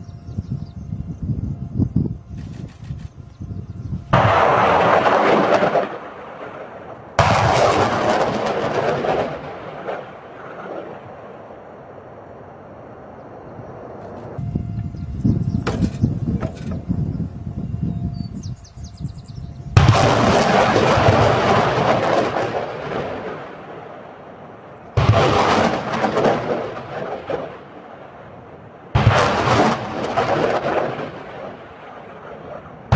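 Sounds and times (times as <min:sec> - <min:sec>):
rocket rushing noise: 0:04.1 - 0:11.0, 0:19.7 - 0:24.0
rocket launch blast: 0:04.1 - 0:11.4, 0:19.7 - 0:24.2, 0:24.9 - 0:28.2, 0:28.9 - 0:32.9.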